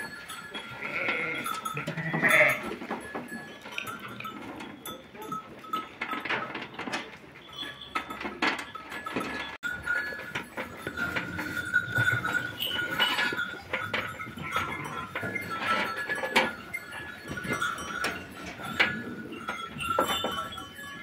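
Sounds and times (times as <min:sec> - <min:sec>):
light metallic clinks: 0:00.0 - 0:21.0.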